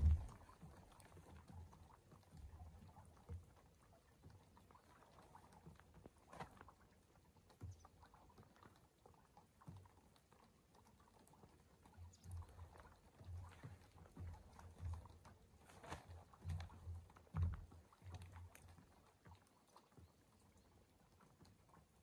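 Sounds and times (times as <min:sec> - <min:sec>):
short low thumps: 0:00.0 - 0:00.3
faint light rain: 0:00.0 - 0:22.0.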